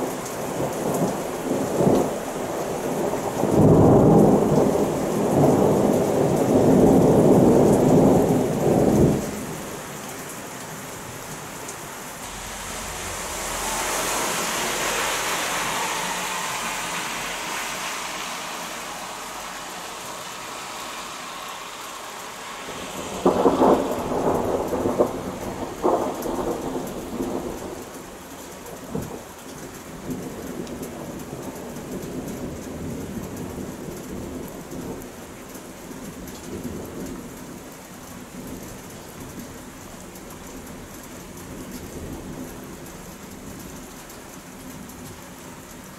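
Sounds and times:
heavy rain hissing: 0:00.0 - 0:45.9
thunder rolling: 0:12.0 - 0:31.5
thunderclap cracking: 0:22.4 - 0:28.2.

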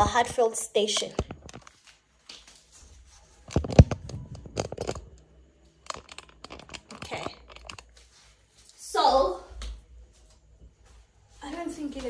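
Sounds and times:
phone handling rustles and scrapes: 0:03.2 - 0:05.2, 0:05.8 - 0:07.9.

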